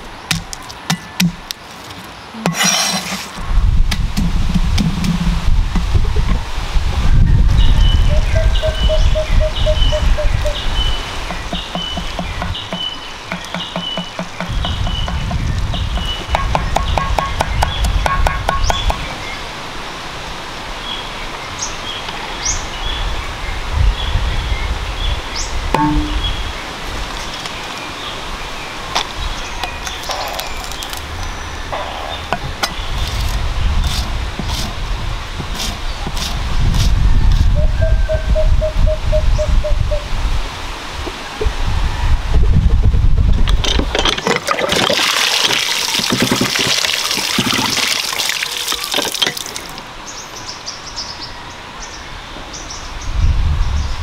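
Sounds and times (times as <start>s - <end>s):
cleaver knocking on wooden board: 11.3s - 19.0s, 25.8s - 26.2s
water splashing over hands: 44.4s - 49.8s.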